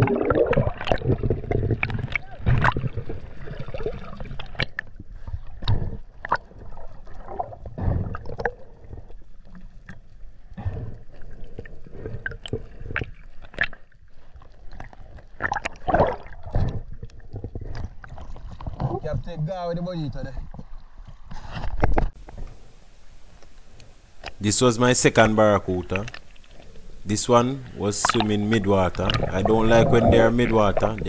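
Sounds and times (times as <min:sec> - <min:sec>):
muffled underwater rumble: 0:00.0 - 0:13.5, 0:22.2 - 0:31.0
water sloshing: 0:25.6 - 0:31.0.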